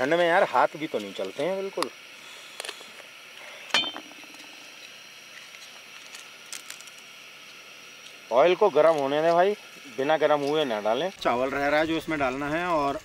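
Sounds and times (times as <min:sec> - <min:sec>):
metallic clink with ring: 0:03.8 - 0:04.3.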